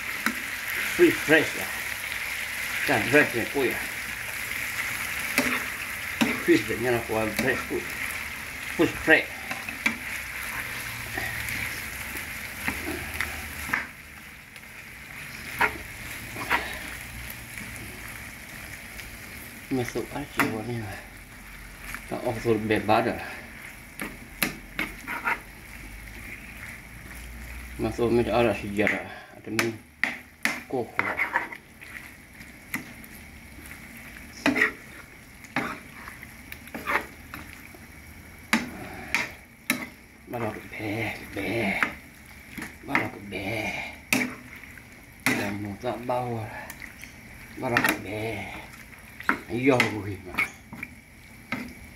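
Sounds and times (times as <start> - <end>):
fish sizzling in frying pan: 0.0 - 51.9
metal spoon scraping pan: 5.3 - 7.7, 24.8 - 25.5, 30.0 - 31.6, 34.4 - 35.0, 36.7 - 37.2, 44.1 - 44.5, 49.2 - 50.7.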